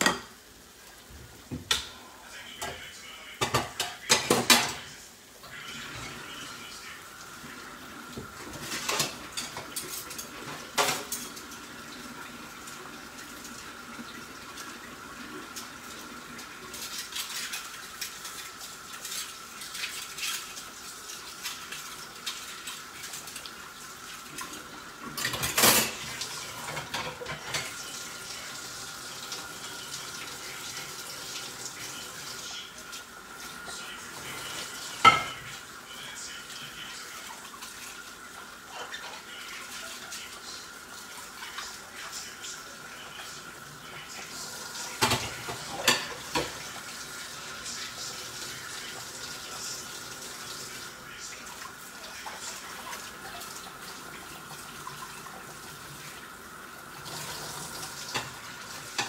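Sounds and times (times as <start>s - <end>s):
pots and pans clinking: 0.0s - 0.4s, 3.4s - 4.8s, 8.2s - 11.6s, 25.1s - 27.9s, 34.9s - 35.5s, 45.0s - 46.7s, 58.1s - 59.0s
pot of water boiling: 0.0s - 2.7s, 3.3s - 59.0s.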